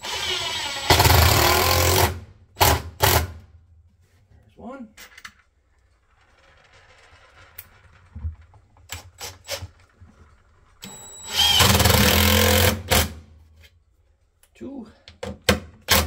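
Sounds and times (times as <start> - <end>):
cordless drill driving screw into wood: 0.0 - 3.4, 10.8 - 13.2.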